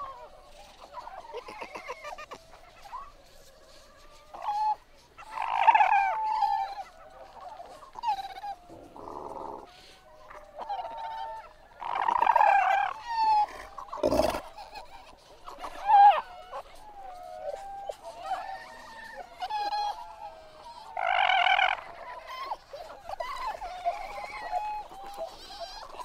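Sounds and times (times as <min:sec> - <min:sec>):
fur seals crying: 0:00.0 - 0:03.2, 0:04.1 - 0:26.0.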